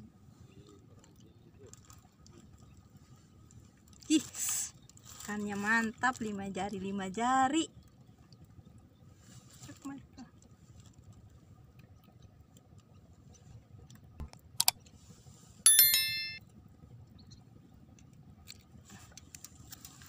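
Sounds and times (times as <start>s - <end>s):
bell-like jingle: 15.7s - 16.4s.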